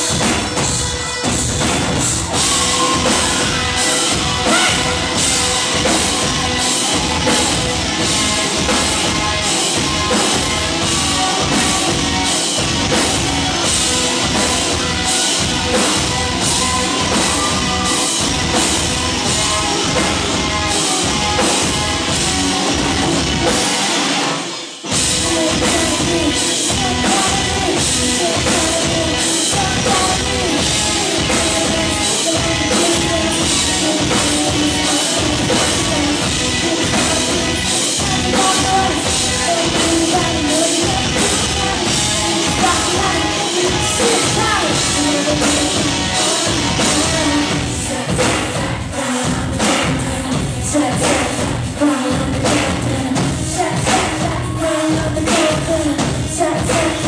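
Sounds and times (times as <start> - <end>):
drum kit: 0.0 - 57.0
electric guitars: 0.0 - 57.0
woman singing: 25.0 - 57.0.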